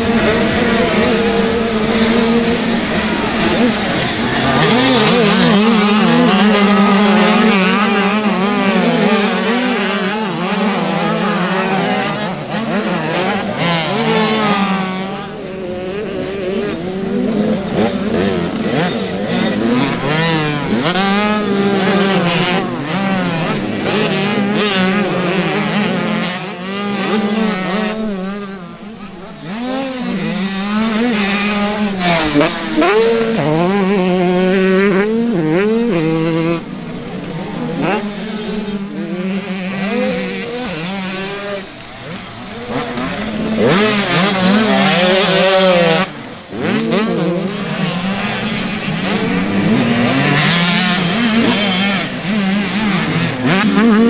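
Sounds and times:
motocross bike engines revving: 0.0 - 54.0.

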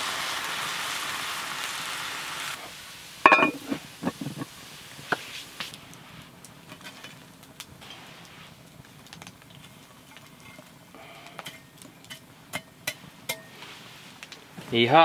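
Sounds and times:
steady hiss: 0.0 - 15.0
cast iron clank: 3.2 - 4.5
light knocks of pot handling: 3.3 - 4.5.

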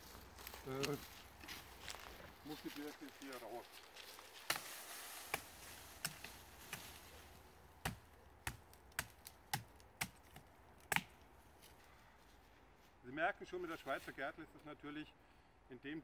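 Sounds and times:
billhook chopping into tree trunk: 5.3 - 7.0, 7.8 - 11.2.

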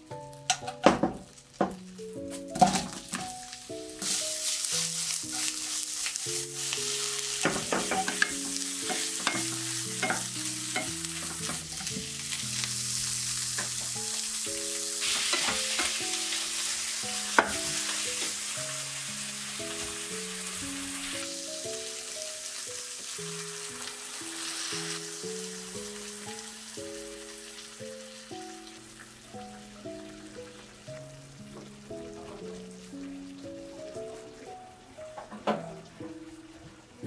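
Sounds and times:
food sizzling in frying pan: 0.0 - 35.2
wooden spatula tapping pan: 0.4 - 1.8, 7.4 - 12.1, 17.3 - 18.4.

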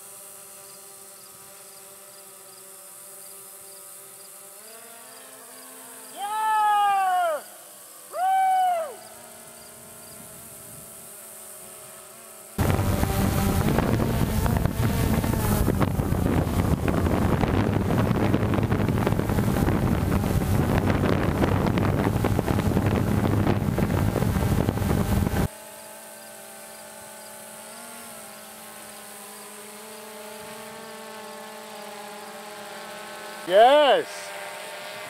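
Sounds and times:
drone propellers: 0.0 - 35.0
wind rush: 12.6 - 25.5.

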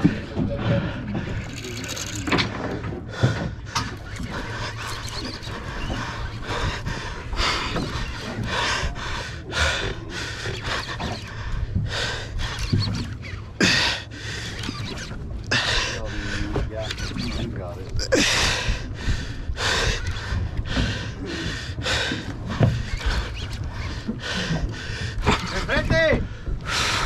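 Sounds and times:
heavy breathing: 2.8 - 12.6, 13.6 - 14.7, 15.5 - 16.8, 18.1 - 25.6.

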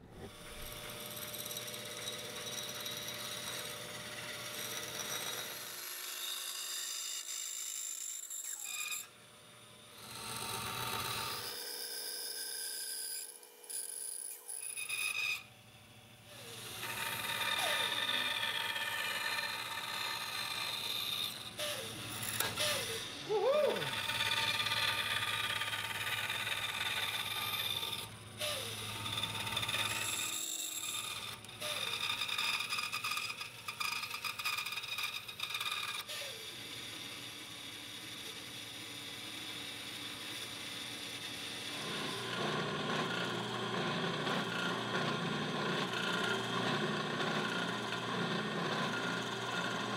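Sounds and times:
electric power tool whining: 16.3 - 33.5.

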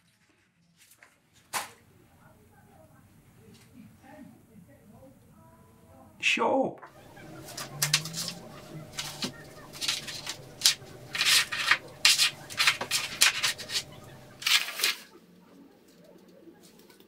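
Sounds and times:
paper rustling: 6.9 - 15.2.

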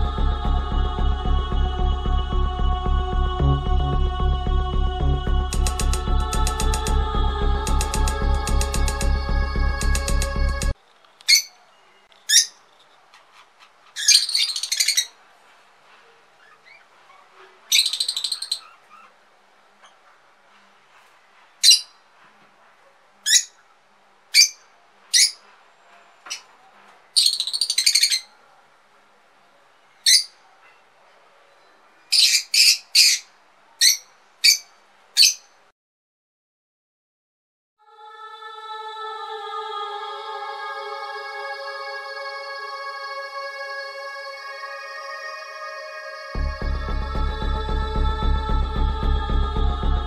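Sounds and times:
bird shrill squeaks: 11.3 - 11.6, 13.3 - 15.1, 21.6 - 21.9.

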